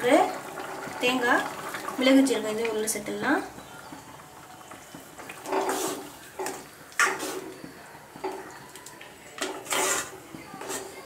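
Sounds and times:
ladle scraping metal pan: 5.4s - 7.6s, 9.4s - 11.0s.

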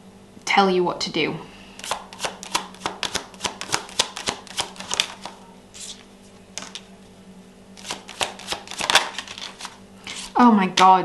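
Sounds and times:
cards being shuffled: 1.8s - 6.9s, 7.8s - 10.9s.

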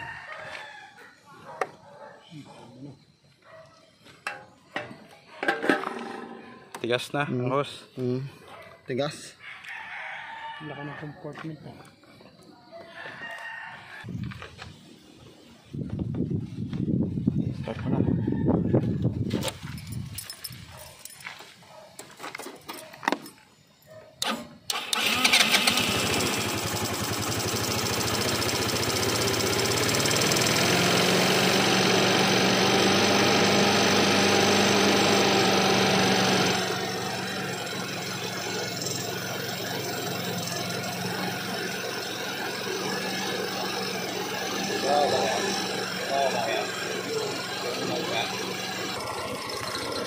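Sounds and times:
scooter engine starting and running: 24.2s - 50.0s.

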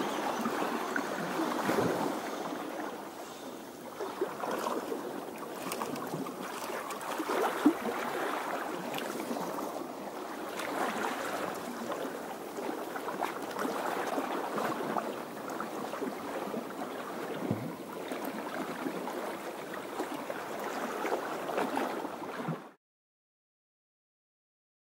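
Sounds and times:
sea water washing against rocks: 4.0s - 16.3s.

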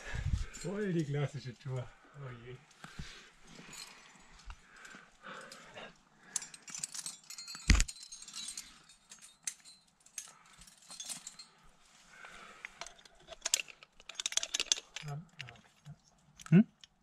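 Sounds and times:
climbing hardware clinking: 2.8s - 11.7s, 12.6s - 17.0s.

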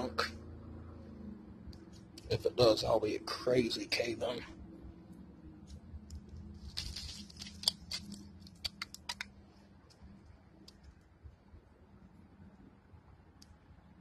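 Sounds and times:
soil and pebbles trickling down: 6.5s - 9.3s.

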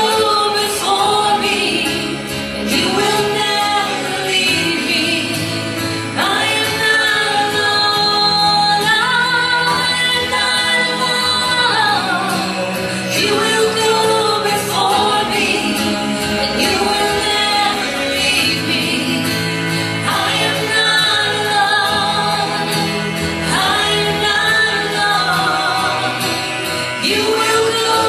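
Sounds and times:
backing music: 0.0s - 28.0s
woman singing: 0.0s - 28.0s.

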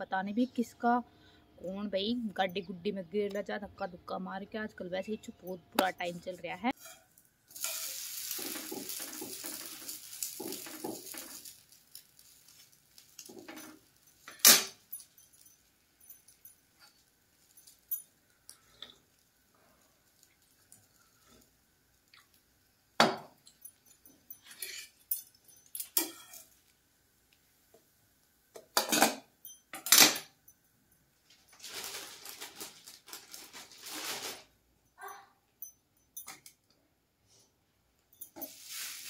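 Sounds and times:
metal utensils and bowls clinking: 5.8s - 19.1s, 23.4s - 26.6s, 28.6s - 30.4s.

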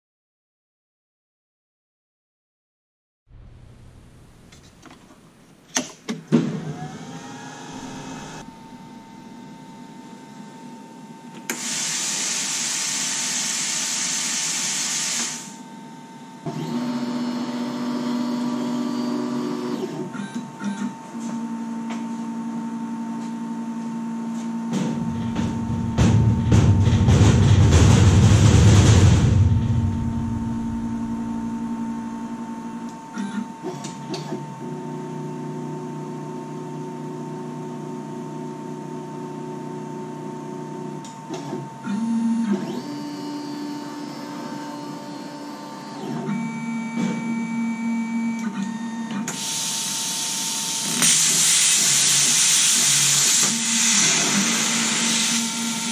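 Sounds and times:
plasma torch hissing: 11.5s - 15.6s, 49.4s - 55.9s
loud rushing noise: 25.7s - 31.4s.

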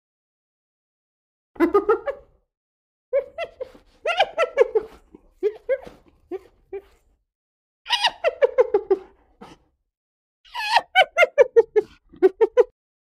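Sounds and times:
hyena giggling: 3.2s - 7.0s, 7.9s - 9.6s, 10.5s - 12.7s.

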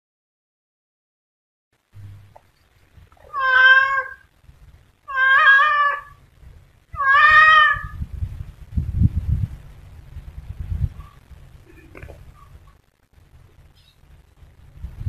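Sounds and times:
low rumbling noise: 1.8s - 15.0s
cat meowing: 3.2s - 4.3s, 5.1s - 6.2s, 7.0s - 8.0s.

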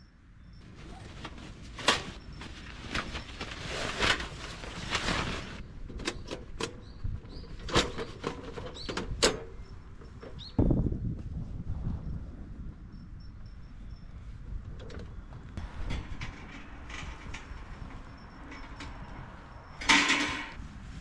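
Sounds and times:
rustling of kindling: 0.6s - 5.7s.

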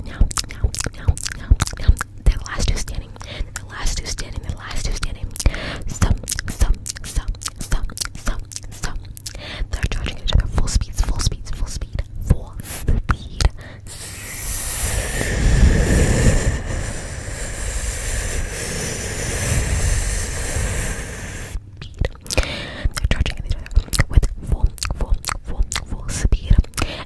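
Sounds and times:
mouth clicks and pops: 0.2s - 2.2s
rushing hiss with low rumble: 13.8s - 21.6s.

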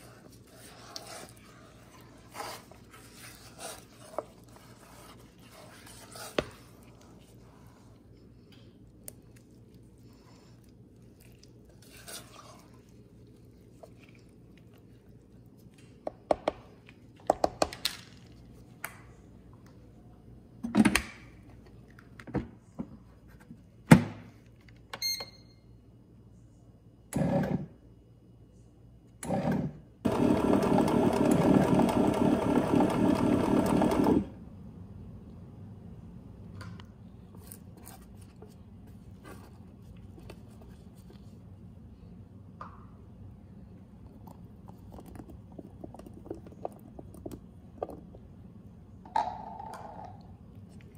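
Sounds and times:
short beep: 25.0s - 25.6s.

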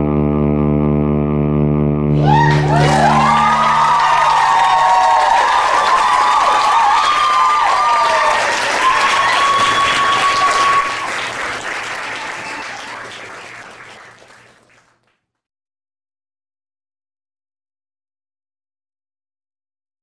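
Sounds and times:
high gliding whoops: 2.1s - 11.2s
audience applauding and cheering: 2.2s - 15.2s.

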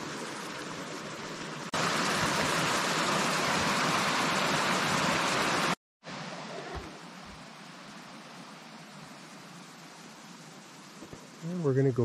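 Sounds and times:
whitewater rushing over rocks: 1.0s - 5.8s
soft steady hiss: 6.1s - 12.0s.

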